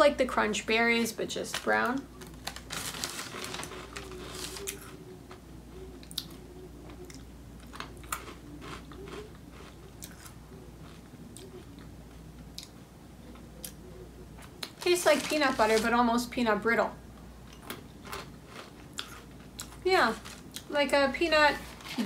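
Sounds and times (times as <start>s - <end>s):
plastic bag rustling: 1.4s - 5.0s, 14.5s - 16.4s, 19.8s - 22.0s
crunching cereal: 1.5s - 5.0s, 7.6s - 11.0s, 14.6s - 16.1s.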